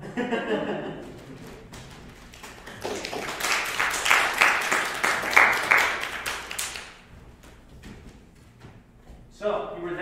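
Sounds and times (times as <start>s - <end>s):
audience applauding: 1.0s - 7.1s.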